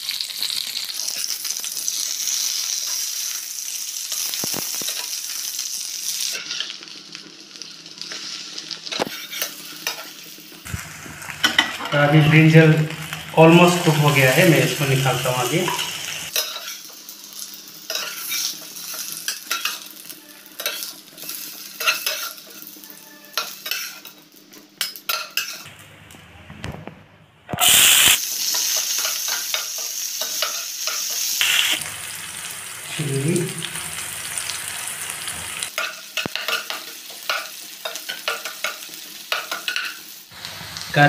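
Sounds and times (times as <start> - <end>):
vegetables sizzling in hot oil: 0.0 - 25.6, 27.6 - 41.0
spatula scraping in a frying pan: 8.0 - 10.2, 17.9 - 19.9.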